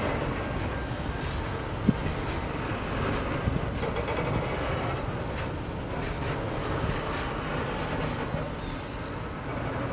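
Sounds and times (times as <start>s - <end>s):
freight train wheels rumbling on rail: 0.0s - 9.9s.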